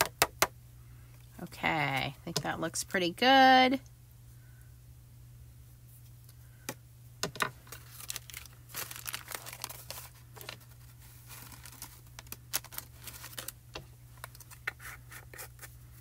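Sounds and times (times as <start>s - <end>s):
paper filter crinkling: 7.6s - 15.8s.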